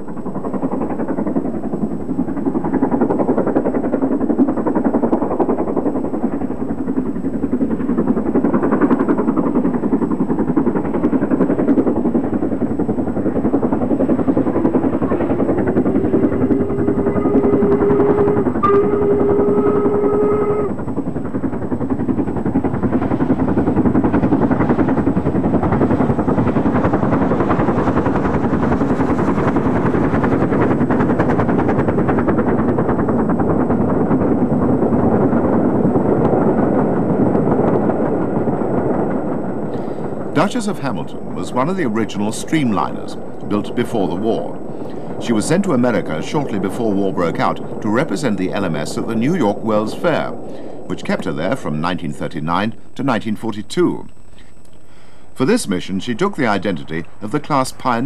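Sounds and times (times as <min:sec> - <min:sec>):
steam locomotive exhaust beating: 0:00.0 - 0:58.0
deep steam whistle blast: 0:15.0 - 0:20.8.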